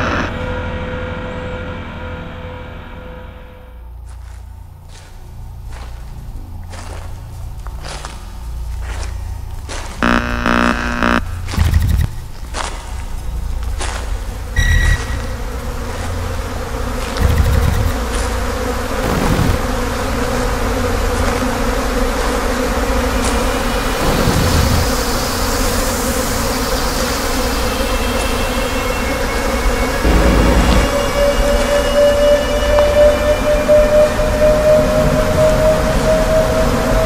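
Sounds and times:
insect-like buzzing drone: 0:04.1 - 0:32.0
thin high whine: 0:10.0 - 0:12.1, 0:26.4 - 0:33.0
low rumble: 0:30.0 - 0:31.3.

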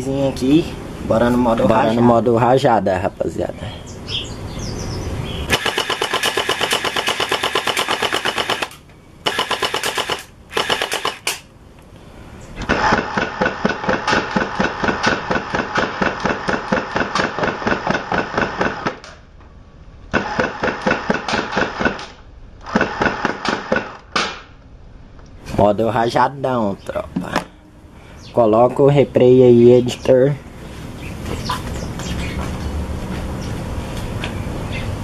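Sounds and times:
gel blaster full auto rattle: 0:05.5 - 0:11.5, 0:12.6 - 0:19.1, 0:20.1 - 0:24.1.

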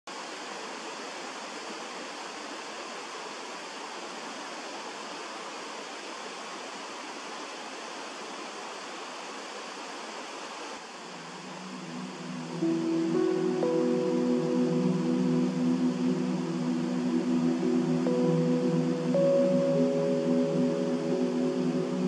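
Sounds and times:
music: 0:11.3 - 0:22.0.

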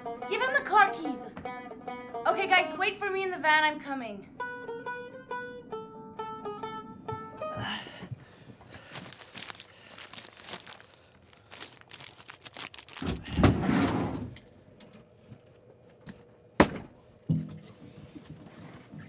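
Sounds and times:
paper bag crinkling: 0:08.7 - 0:13.6.

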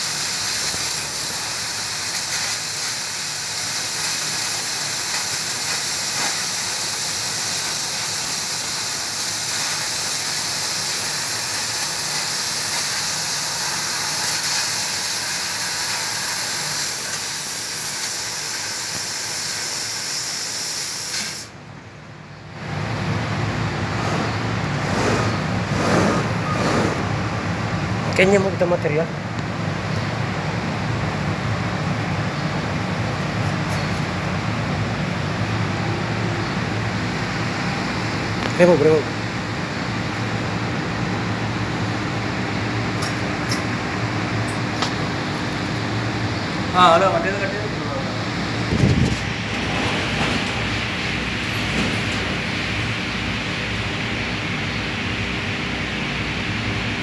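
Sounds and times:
laser cutter hissing: 0:00.0 - 0:21.6
low machine hum: 0:21.6 - 0:57.0.

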